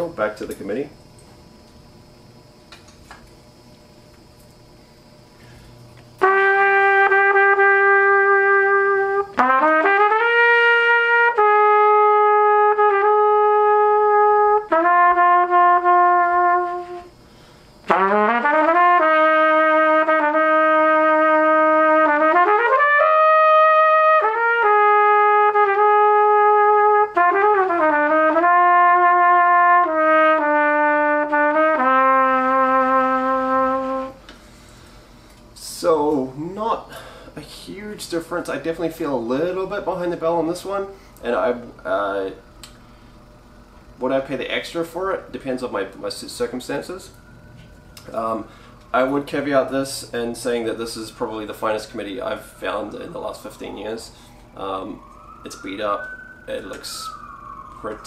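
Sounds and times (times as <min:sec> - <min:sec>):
trumpet melody: 0:06.2 - 0:17.2, 0:17.9 - 0:34.2.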